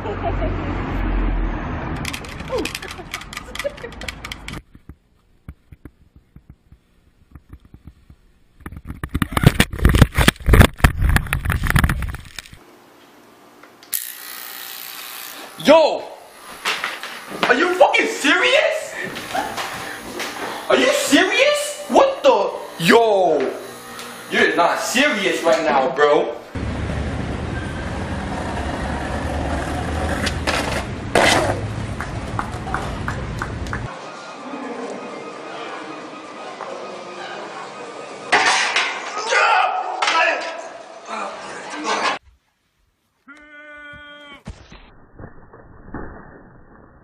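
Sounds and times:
electric hair clippers buzzing: 13.8 - 18.4, 19.0 - 25.6
skateboard wheels rolling on concrete: 26.6 - 33.9
skateboard scraping crash: 30.0 - 31.6.

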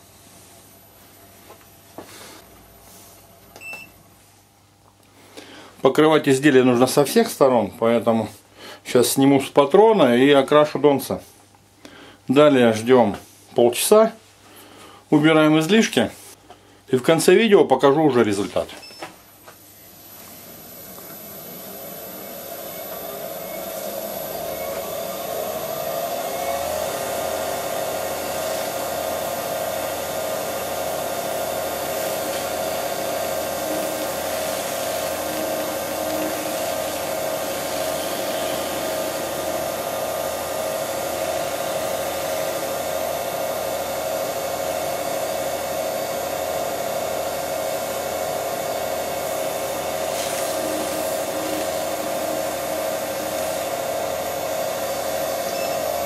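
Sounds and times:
lathe motor whine: 19.8 - 56.0.

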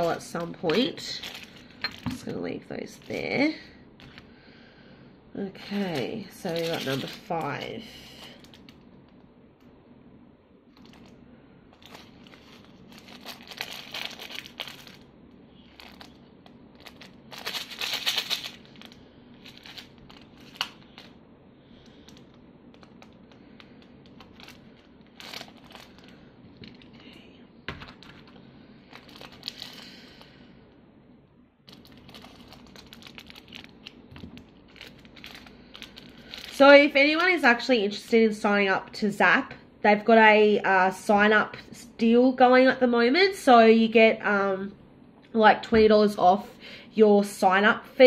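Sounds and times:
plastic bag crinkling: 0.0 - 4.3, 5.6 - 8.9, 10.7 - 30.4, 31.6 - 37.7.

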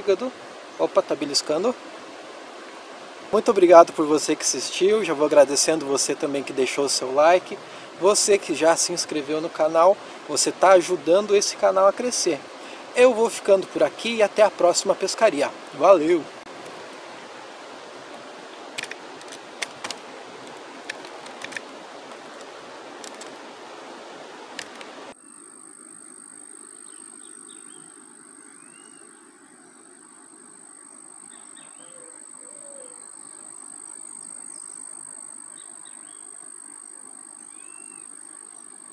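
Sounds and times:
steady hiss: 0.0 - 38.9
sharp clicks: 18.8 - 21.7
high-pitched insect drone: 25.1 - 38.9.

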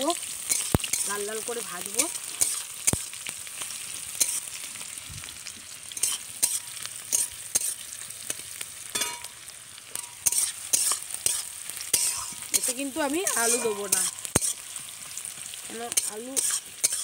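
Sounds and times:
onions sizzling in hot oil: 0.0 - 17.0
metal spatula scraping pan: 6.0 - 7.8, 8.9 - 9.3, 10.0 - 14.8, 16.0 - 17.0
metallic ring: 13.4 - 14.1.

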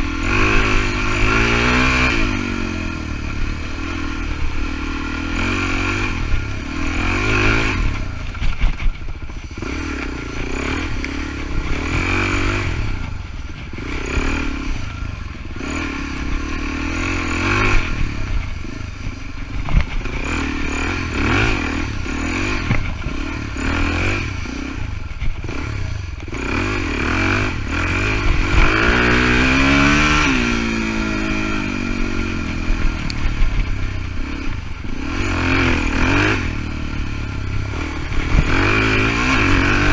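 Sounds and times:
dirt bike engine revving: 0.0 - 39.9
bike rattles and knocks: 5.5 - 15.8, 17.4 - 26.8.

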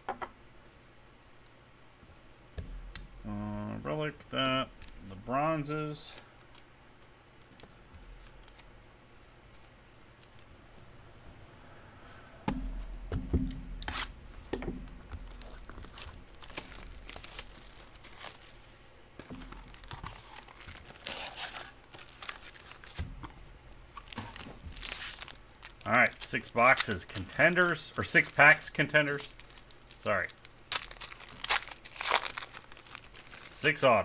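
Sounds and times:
card pack wrappers tearing: 13.8 - 14.2, 15.1 - 34.0.

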